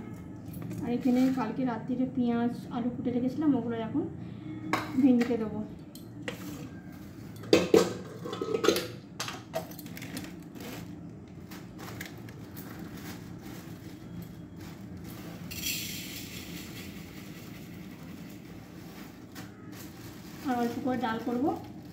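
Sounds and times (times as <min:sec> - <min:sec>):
dishes clinking on a counter: 0:04.7 - 0:09.9
plastic bag rustling: 0:09.8 - 0:21.9.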